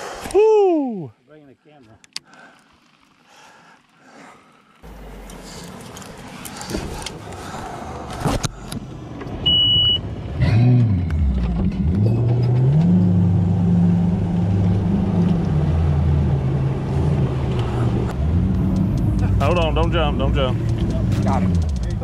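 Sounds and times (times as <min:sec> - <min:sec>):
outboard motor idling: 0:02.2 - 0:08.9
short electronic beep: 0:09.4 - 0:10.0.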